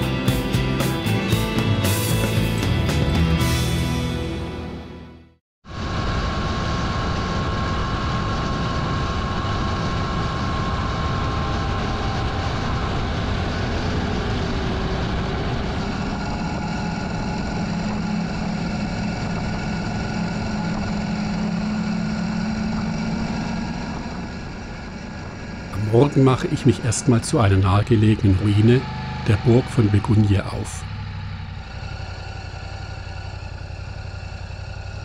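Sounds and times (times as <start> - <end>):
motorcycle engine running: 0.0 - 4.9, 7.8 - 35.0
wind rushing over camera: 5.7 - 25.8.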